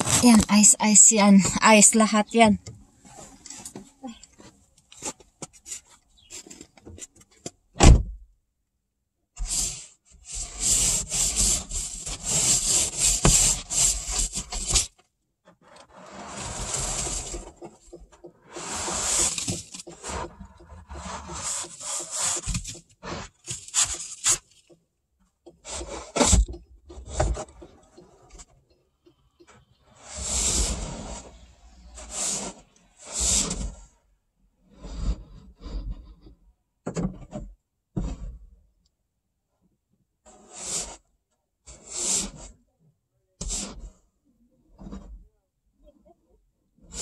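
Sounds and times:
ice scraper scraping windshield: 9.4 - 15.0, 15.6 - 24.8, 25.5 - 28.4, 29.9 - 34.0, 40.3 - 41.0, 41.7 - 42.6, 43.4 - 44.0.

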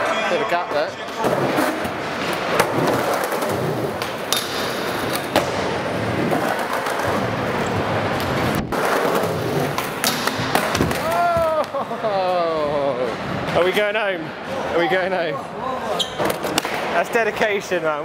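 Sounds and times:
skateboard wheels rolling on concrete: 1.0 - 11.8.

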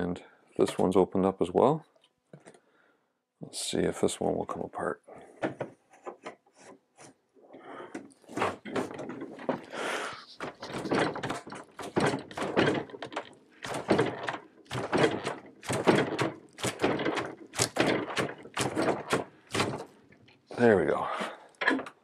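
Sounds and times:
wooden joint knocking: 10.4 - 19.9.

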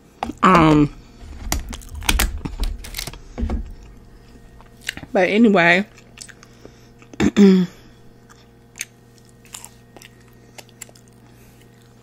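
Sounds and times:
chewing mouth smacks: 5.9 - 7.2, 8.2 - 12.0
person humming: 7.2 - 8.0.

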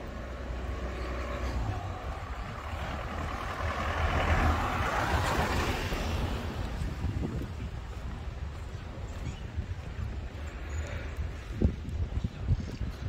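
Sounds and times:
motor vehicle passing by: 0.0 - 7.7
wind on microphone: 0.0 - 13.0.

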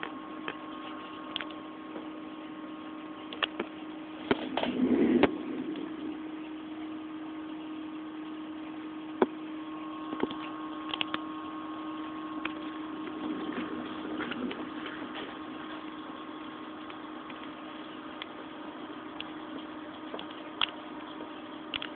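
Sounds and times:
aquarium equipment humming: 0.0 - 21.9
sharp clicks: 10.2 - 11.2.

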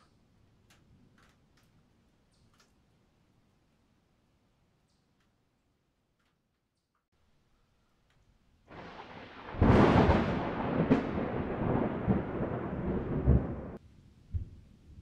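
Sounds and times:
thunder crack and rumble: 8.7 - 14.6.

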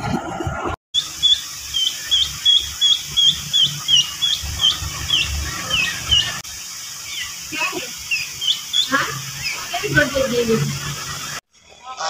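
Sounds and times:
chicks peeping: 1.0 - 10.2.

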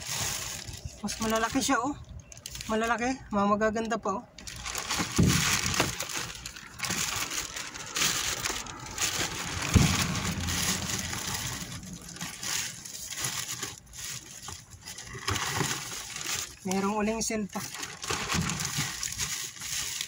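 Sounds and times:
plastic bags crinkling: 0.0 - 20.0
cardboard rustling: 4.4 - 20.0.

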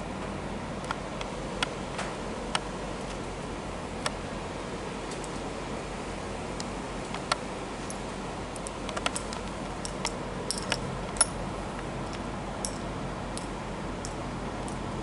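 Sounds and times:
light clicks and taps: 8.6 - 12.8.

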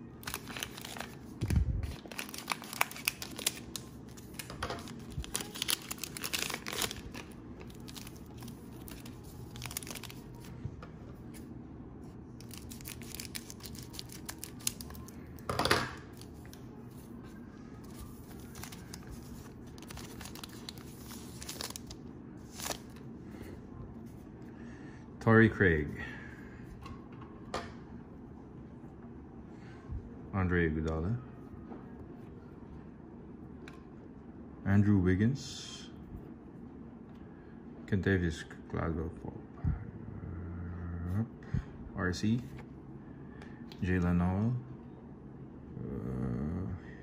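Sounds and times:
cellophane wrapper crinkling: 0.2 - 10.5, 12.4 - 15.5, 17.8 - 23.0
cards handled: 17.8 - 23.0.

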